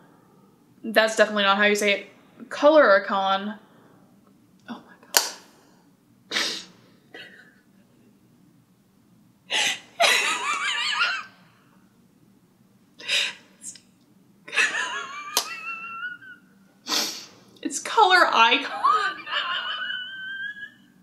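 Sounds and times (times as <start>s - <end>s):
woman laughing: 9.5s - 11.3s, 14.5s - 16.5s, 18.6s - 21.0s.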